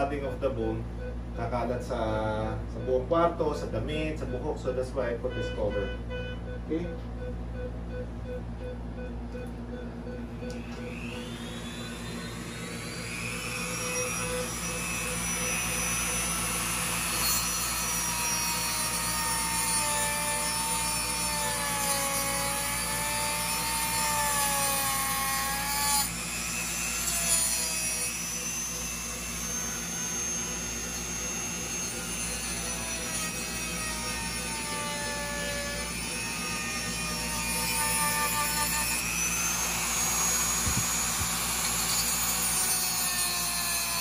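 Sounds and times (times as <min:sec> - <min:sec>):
rotary tool grinding bone: 0:11.2 - 0:44.0.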